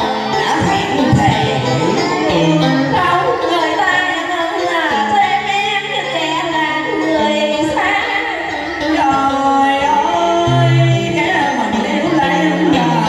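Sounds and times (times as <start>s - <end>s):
man singing: 0.0s - 3.5s, 8.9s - 13.0s
backing track with bass line: 0.0s - 13.0s
woman singing: 0.0s - 13.0s.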